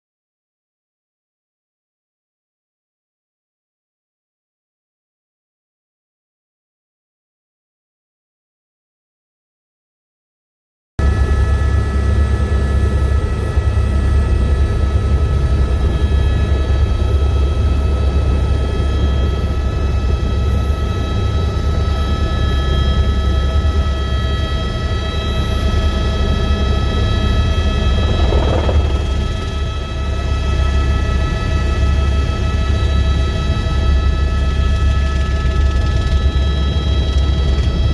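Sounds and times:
helicopter rotor low drone: 11.0s - 37.9s
turbine high whine: 11.0s - 37.9s.

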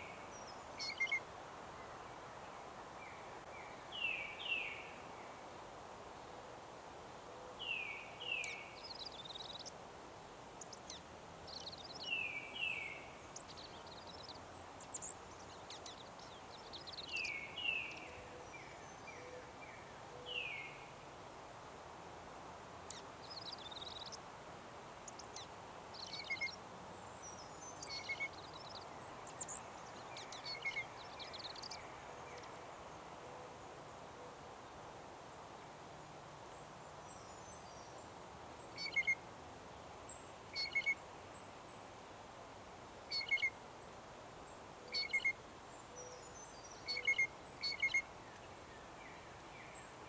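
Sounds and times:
faint background noise: 0.0s - 50.0s
songbird whistled notes: 38.8s - 39.2s, 46.8s - 48.0s.

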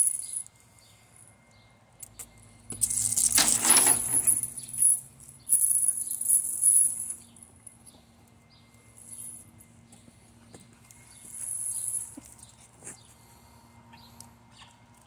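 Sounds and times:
metal chain jangling on asphalt: 0.0s - 9.9s, 10.7s - 12.7s.

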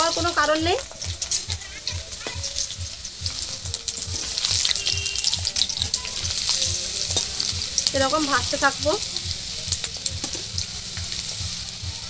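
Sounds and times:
metal ladle stirring: 0.0s - 11.8s
lentils sizzling in hot oil: 0.0s - 12.0s.

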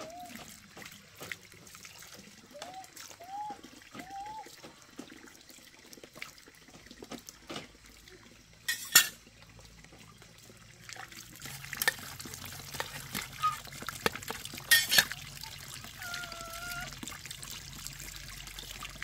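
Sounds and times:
water trickling: 0.0s - 19.0s
dishes clattering: 8.7s - 9.2s, 14.6s - 15.2s
dishes clinking: 8.7s - 9.2s, 14.6s - 15.2s.

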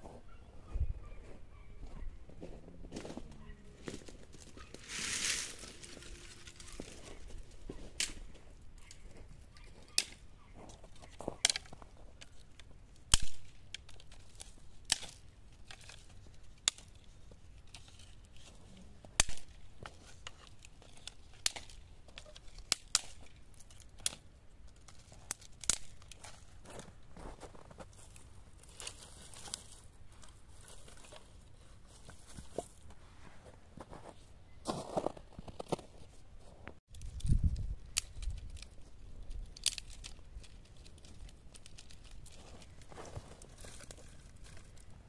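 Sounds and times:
twigs snapping: 4.4s - 26.9s, 36.9s - 44.9s.

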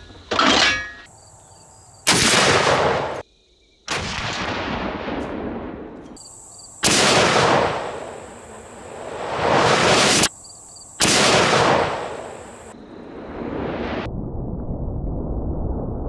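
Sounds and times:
rifle shot echoing: 2.1s - 3.2s, 3.9s - 6.0s, 6.8s - 10.3s, 11.0s - 12.7s.

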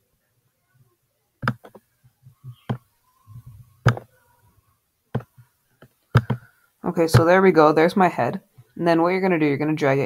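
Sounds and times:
computer mouse clicking: 1.4s - 1.8s, 6.2s - 6.5s.

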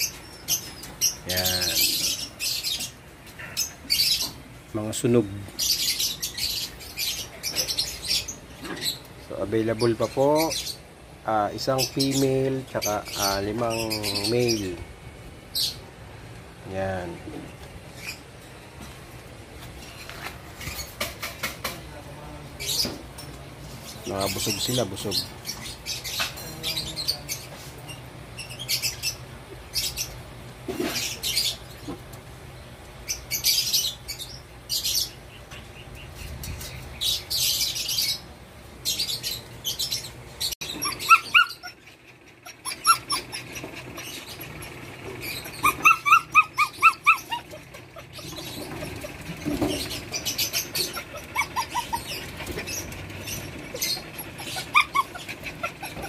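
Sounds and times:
rustling and scratching: 17.3s - 21.9s, 46.8s - 56.0s
puppies whimpering and yelping: 40.5s - 56.0s.

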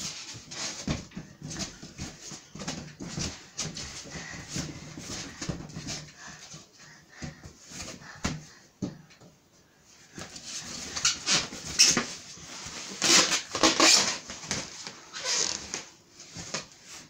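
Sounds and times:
balloons squeaking and rubbing: 10.5s - 16.0s.

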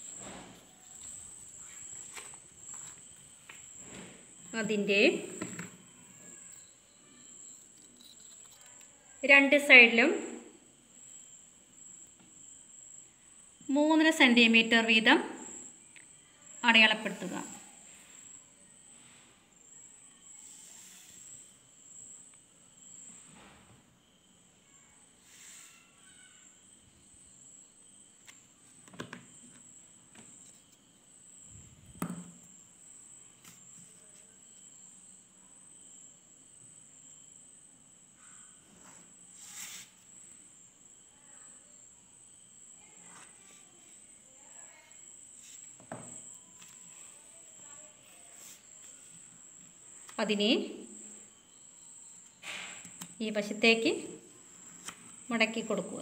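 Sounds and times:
faint high-pitched tone: 4.6s - 10.7s.

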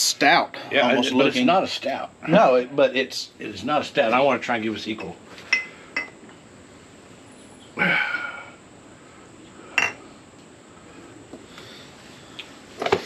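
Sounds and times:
bottle clinking against glass rims: 5.0s - 6.2s, 9.8s - 10.0s
sharp ringing glass clink: 9.8s - 10.0s.

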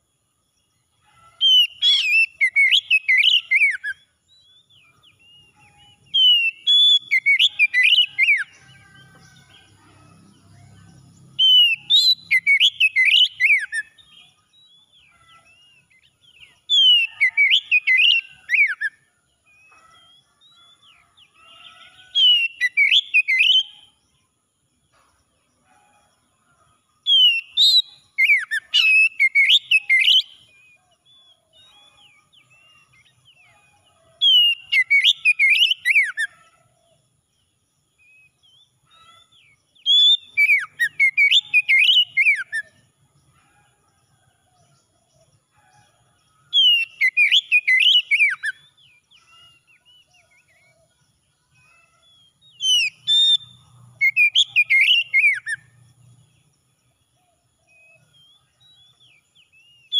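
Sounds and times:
bird whistled song: 1.4s - 8.9s, 11.4s - 24.0s, 27.0s - 36.4s, 38.0s - 42.8s, 46.5s - 50.8s, 51.6s - 55.8s.

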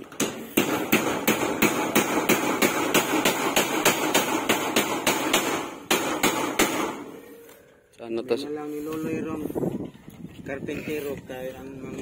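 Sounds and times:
hammer blows on metal roofing: 0.0s - 7.2s.

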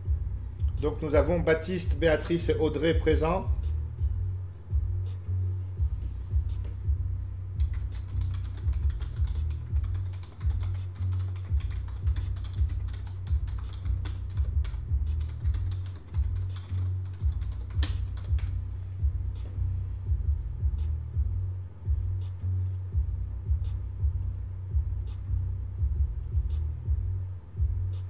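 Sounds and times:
background music with bass beat: 0.0s - 28.0s
keyboard typing: 7.6s - 18.6s.

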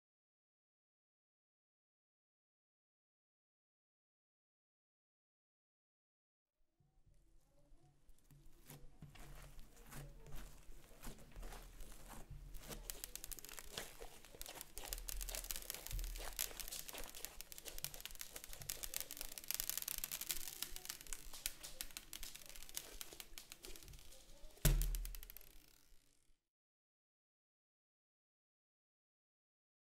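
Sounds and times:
crunchy slime crackling: 8.2s - 26.1s
slime ball thump: 12.0s - 25.5s.

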